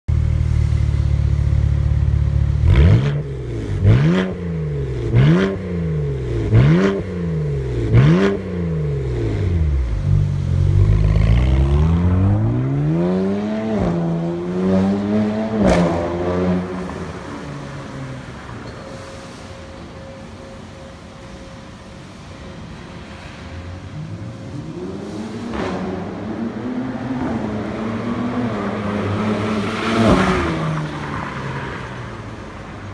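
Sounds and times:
car engine revving: 0:02.5 - 0:17.0.

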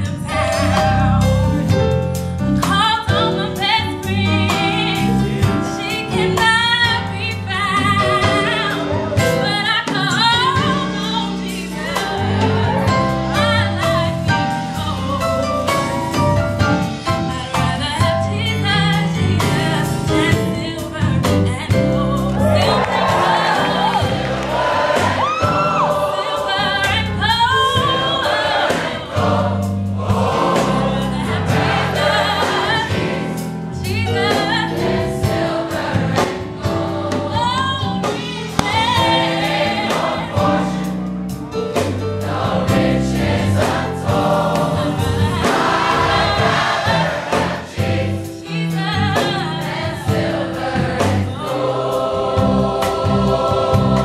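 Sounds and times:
woman singing into a microphone: 0:02.7 - 0:12.2
choir singing in harmony: 0:04.1 - 0:21.0, 0:21.6 - 0:54.0.

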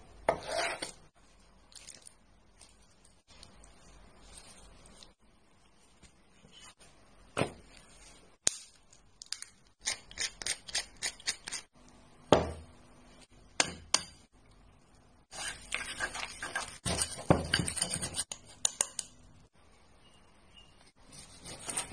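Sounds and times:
chopsticks stirring batter: 0:15.3 - 0:19.2.

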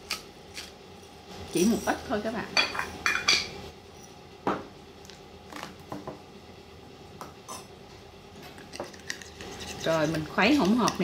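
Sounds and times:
spoon stirring paste: 0:08.6 - 0:11.0.

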